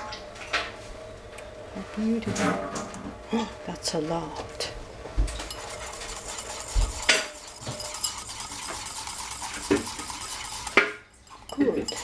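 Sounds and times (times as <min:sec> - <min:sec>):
utensil scraping and clicking bowl: 0:04.3 - 0:12.0.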